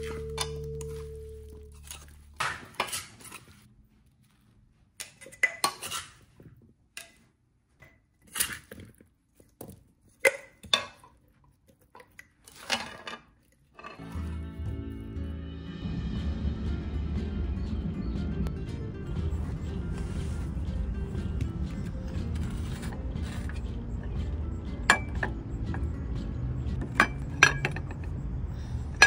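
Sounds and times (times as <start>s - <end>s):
background music: 0.0s - 2.5s, 14.0s - 29.0s
metal spoon clinking dishes: 23.3s - 25.9s, 26.6s - 28.2s.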